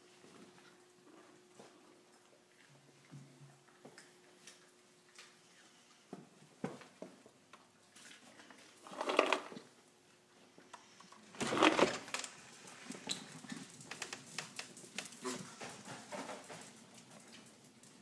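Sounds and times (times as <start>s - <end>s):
puppy claws clicking on floor: 12.2s - 18.0s.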